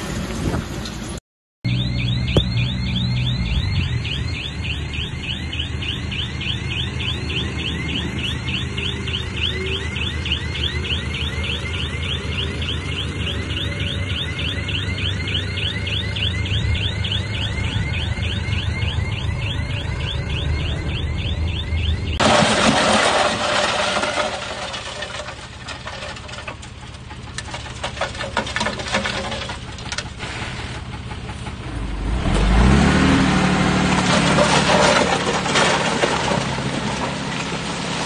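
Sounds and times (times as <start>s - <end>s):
diesel engine running: 0.0s - 38.0s
chirping warning alarm: 1.7s - 22.2s.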